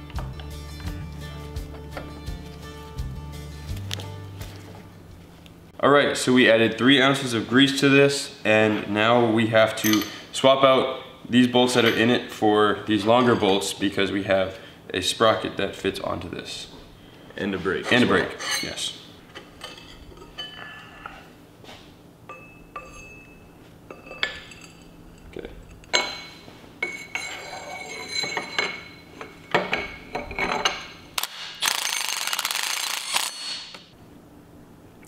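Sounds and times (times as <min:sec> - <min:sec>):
metal parts clinking: 0:24.0 - 0:33.9.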